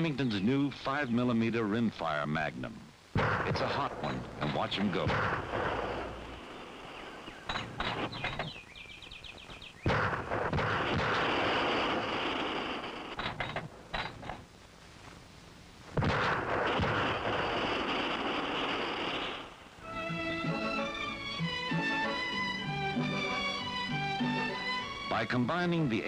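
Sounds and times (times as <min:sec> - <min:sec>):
rifle shots: 0:03.2 - 0:08.2, 0:09.8 - 0:14.4, 0:16.0 - 0:19.6.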